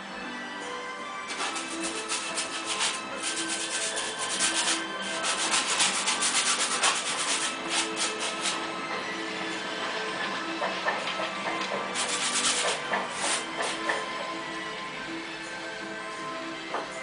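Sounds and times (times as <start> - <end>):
paintbrush scrubbing on canvas: 1.3 - 8.7, 12.0 - 13.9.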